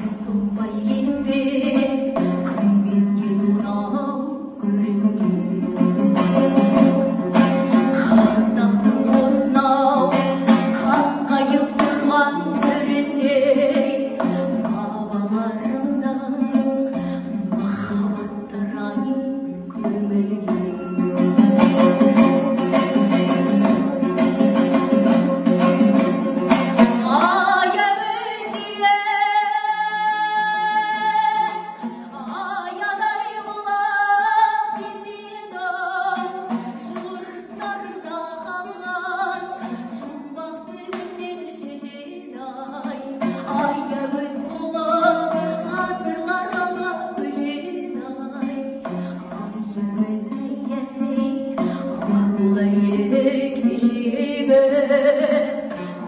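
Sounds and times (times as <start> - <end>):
woman singing: 0.0 - 25.2, 25.8 - 56.0
strummed two-stringed lute: 0.0 - 56.0.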